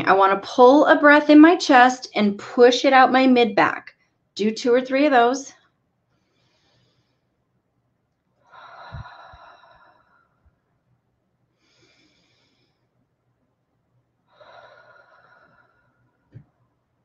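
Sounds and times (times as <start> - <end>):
woman breathing deeply: 6.1 - 7.6, 8.4 - 10.6, 11.5 - 13.1, 14.2 - 16.3.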